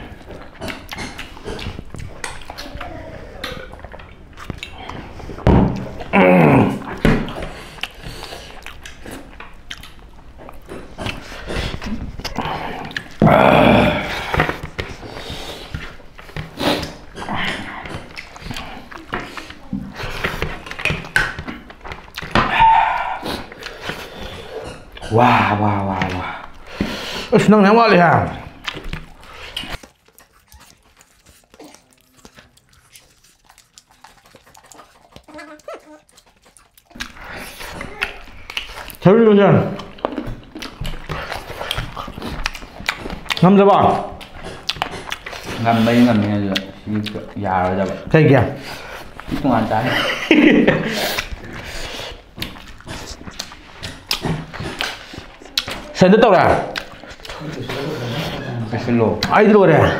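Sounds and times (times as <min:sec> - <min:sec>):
soft chewing and lip smacks: 0:00.0 - 0:06.1, 0:06.8 - 0:13.2, 0:14.4 - 0:25.1, 0:25.7 - 0:27.4, 0:28.3 - 0:39.1, 0:39.7 - 0:59.9
fingers and food clicking on plates: 0:00.0 - 0:06.2, 0:06.8 - 0:59.9
loud vocal cry: 0:13.2 - 0:14.4, 0:22.4 - 0:23.4.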